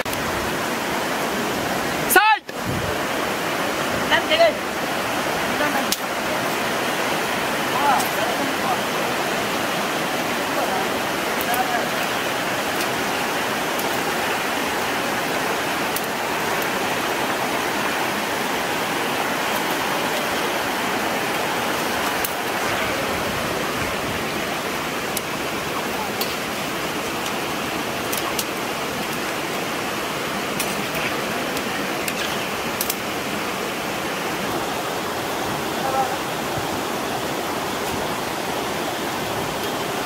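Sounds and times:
burning sticks crackling: 0:11.0 - 0:33.4.

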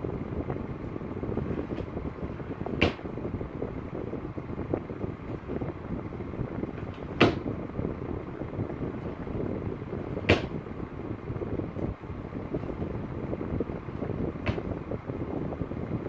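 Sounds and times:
low rumbling background: 0:00.0 - 0:16.0
wooden drawer opening and knocking: 0:07.0 - 0:07.4.

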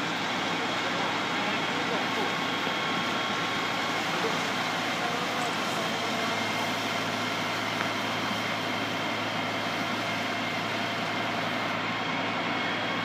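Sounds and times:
fire engine pump droning: 0:00.0 - 0:13.0
fire hose spraying water: 0:00.0 - 0:13.0.

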